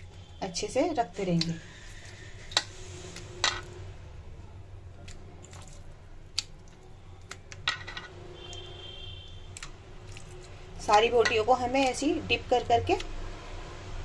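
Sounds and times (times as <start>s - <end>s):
meat squelching in marinade: 1.2s - 3.7s, 4.8s - 7.6s, 8.4s - 12.2s.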